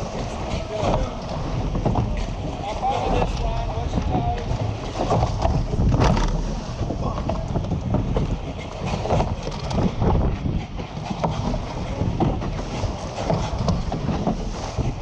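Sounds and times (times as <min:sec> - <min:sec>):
water splashing against hull: 0:00.0 - 0:15.0
wind buffeting microphone: 0:00.0 - 0:15.0.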